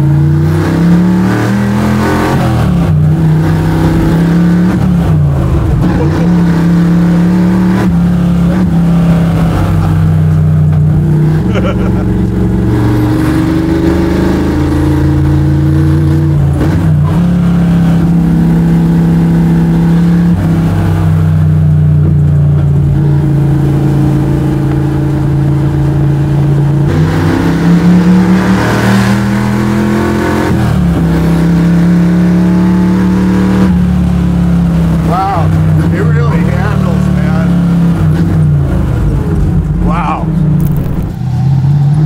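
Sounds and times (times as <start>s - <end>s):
engine revving: 0.0s - 42.0s
truck engine droning: 0.0s - 42.0s.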